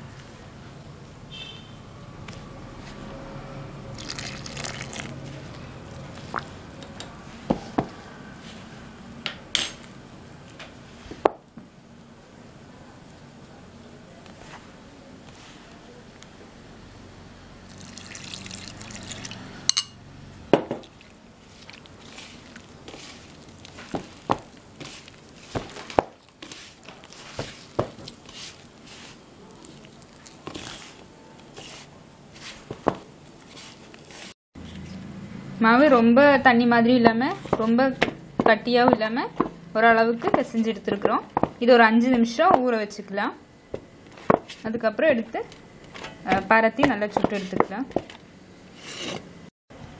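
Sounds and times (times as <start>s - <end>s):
hand mixing dough: 3.9s - 8.9s, 20.8s - 34.4s.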